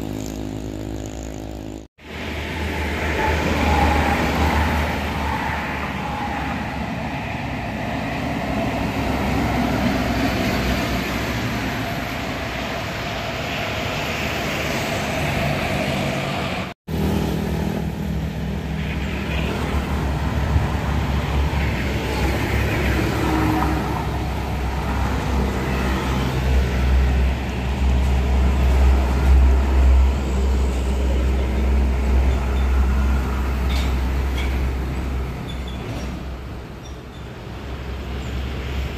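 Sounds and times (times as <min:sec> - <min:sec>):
motorcycles passing: 0:00.0 - 0:29.7
cars passing: 0:00.0 - 0:38.9.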